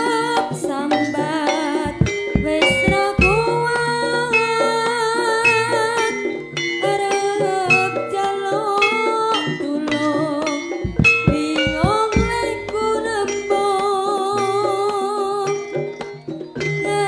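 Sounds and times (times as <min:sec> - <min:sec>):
gamelan music: 0:00.0 - 0:17.0
deep drum strokes: 0:01.9 - 0:03.6, 0:10.9 - 0:13.7
wavering melody line: 0:01.9 - 0:06.2, 0:10.8 - 0:16.0.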